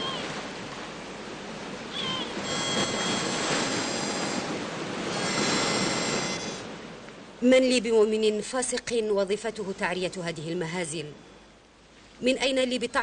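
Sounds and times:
high layered ringing tone: 0:02.0 - 0:04.5.

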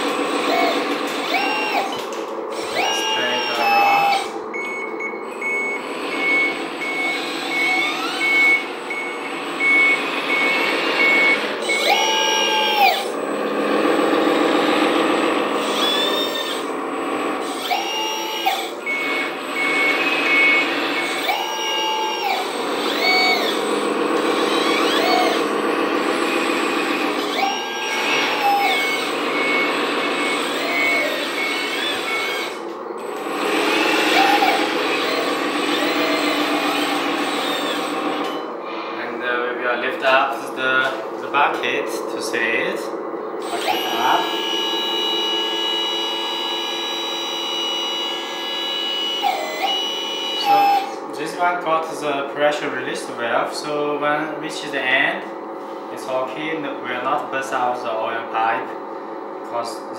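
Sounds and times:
simulated diesel engine running: 0:00.0 - 0:59.9
reversing warning beeps: 0:00.5 - 0:13.2, 0:17.6 - 0:23.7, 0:24.3 - 0:25.5, 0:27.1 - 0:33.2, 0:33.8 - 0:38.5, 0:43.4 - 0:51.0.

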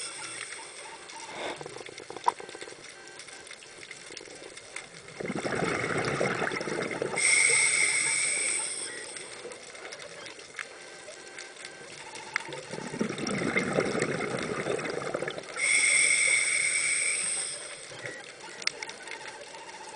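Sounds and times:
exhaled bubbles burbling: 0:04.9 - 0:09.0, 0:12.4 - 0:15.6
regulator hissing on inhalation: 0:07.2 - 0:09.3, 0:15.6 - 0:17.9.

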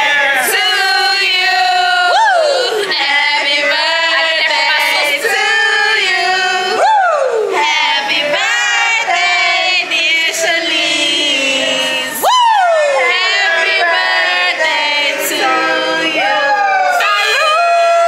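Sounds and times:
voices singing together: 0:00.0 - 0:18.0
long falling cry: 0:01.5 - 0:03.0, 0:06.3 - 0:07.6, 0:12.2 - 0:13.6, 0:16.0 - 0:18.0.

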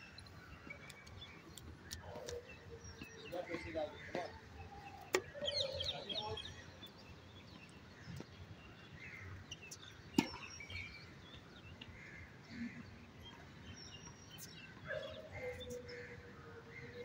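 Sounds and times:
birds chirping: 0:00.0 - 0:17.0.

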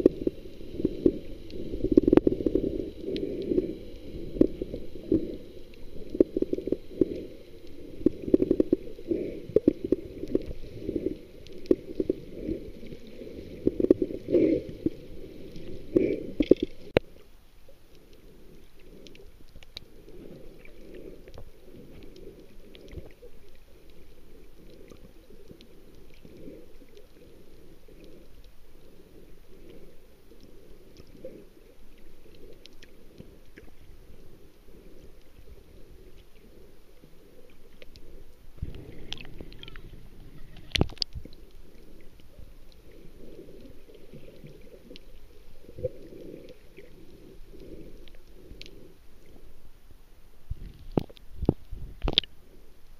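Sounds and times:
faint clicks: 0:00.0 - 0:49.4, 0:50.6 - 0:52.4
underwater rumble: 0:00.0 - 0:52.9.

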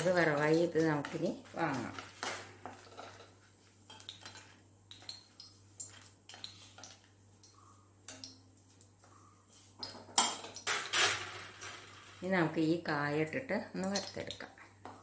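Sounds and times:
spatula scraping in a metal pan: 0:00.0 - 0:04.6.

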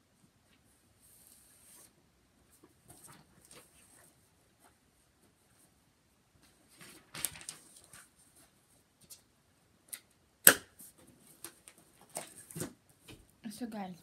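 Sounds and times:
paper and plastic rustling: 0:06.4 - 0:08.7, 0:11.1 - 0:13.2.

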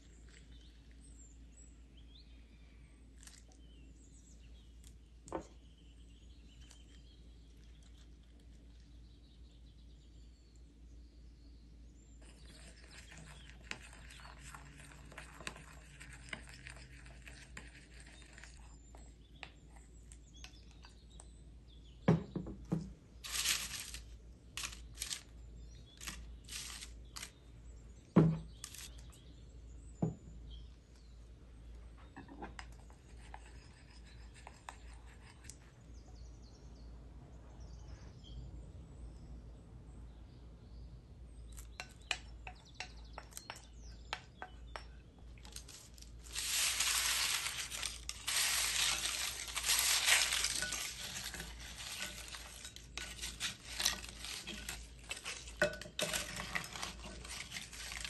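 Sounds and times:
wooden spoon stirring in bowl: 0:12.2 - 0:21.1, 0:23.2 - 0:25.3, 0:25.9 - 0:27.4, 0:41.8 - 0:58.0
rustling of pita chips on paper: 0:23.2 - 0:25.3, 0:25.9 - 0:27.4, 0:28.6 - 0:29.0, 0:45.5 - 0:58.0.

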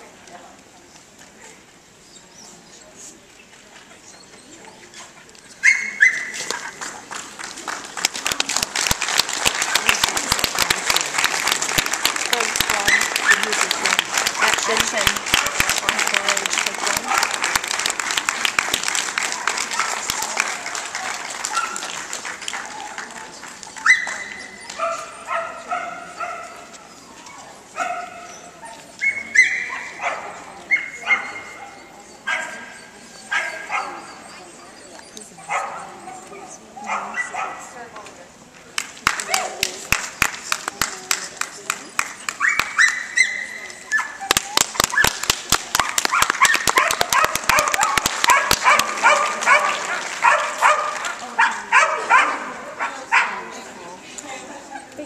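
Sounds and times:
dog barking sharply: 0:46.1 - 0:52.4.

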